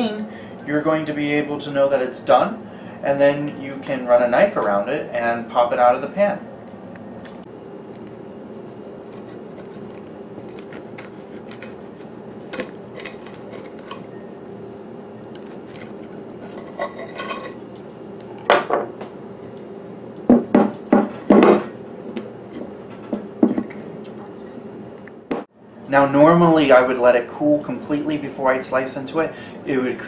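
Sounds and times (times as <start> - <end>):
steady low hum: 0.0 - 30.0
knife scraping glass pan: 9.0 - 14.1, 15.4 - 17.6.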